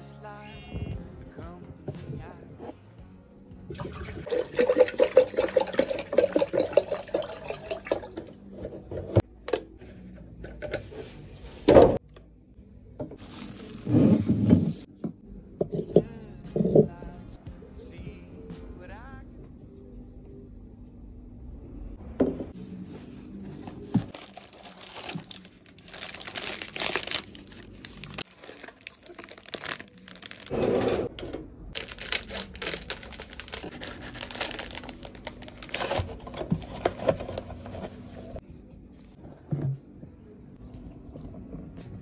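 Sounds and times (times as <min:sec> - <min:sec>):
foil wrapping crackling: 0:13.2 - 0:14.9, 0:24.0 - 0:30.6, 0:31.8 - 0:38.3.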